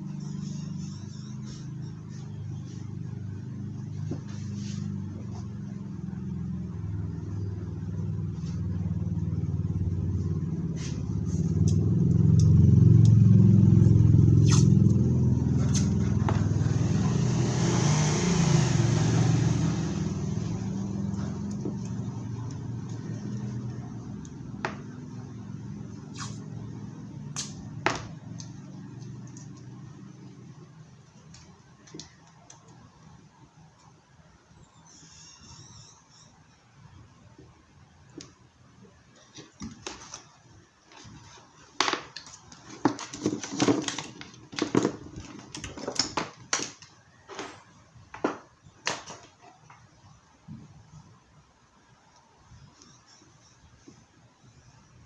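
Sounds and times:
vehicle engine passing by: 0:00.0 - 0:31.0.

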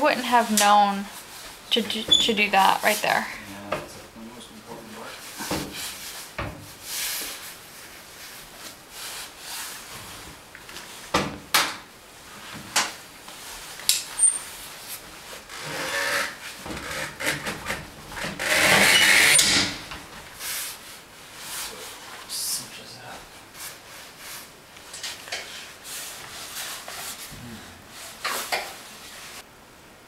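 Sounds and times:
strap webbing rubbing through buckle: 0:13.8 - 0:19.7.

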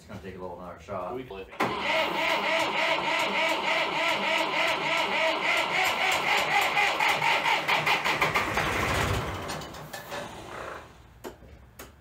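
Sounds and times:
tractor diesel engine running: 0:01.6 - 0:10.0.

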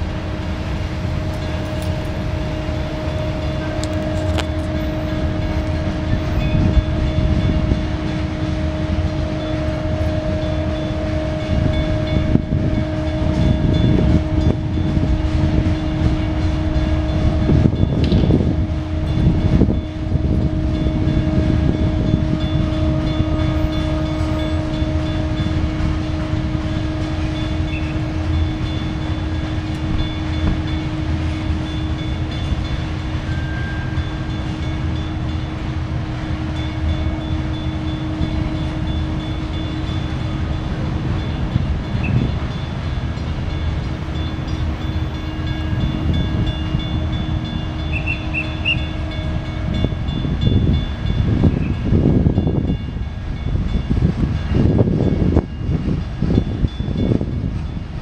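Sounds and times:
steel wheels rumbling on rail: 0:00.0 - 0:58.0.

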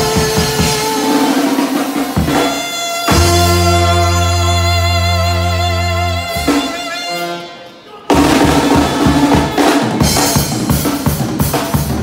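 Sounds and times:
drum kit beat: 0:00.0 - 0:12.0
live band music: 0:00.0 - 0:12.0
saxophone chord: 0:02.2 - 0:07.8.

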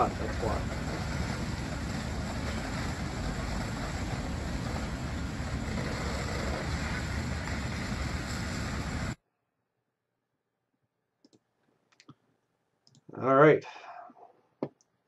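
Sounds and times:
large fire rushing: 0:00.0 - 0:09.2.

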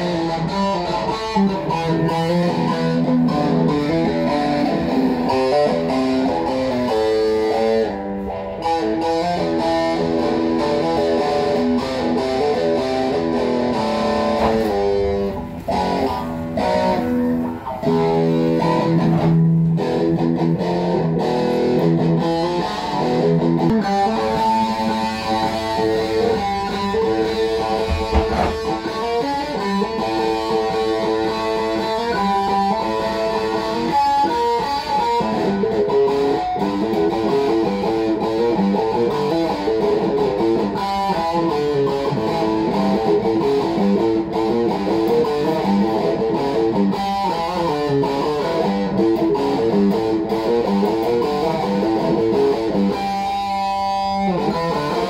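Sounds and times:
electric guitar lead melody: 0:00.0 - 0:55.0.

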